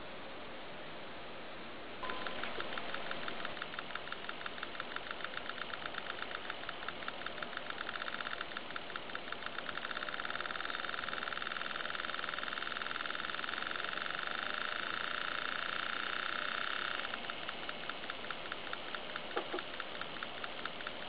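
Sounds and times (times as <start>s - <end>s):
buzzy electronic engine clicks: 2.0s - 21.0s.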